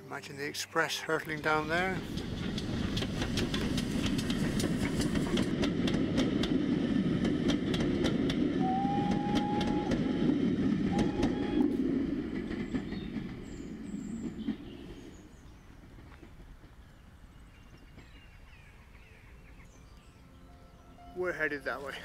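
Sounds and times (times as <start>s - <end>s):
train rumble: 0.0s - 22.0s
train wheels clicking over rail joints: 1.4s - 19.1s
train whistle blast: 8.6s - 10.3s, 10.9s - 11.7s.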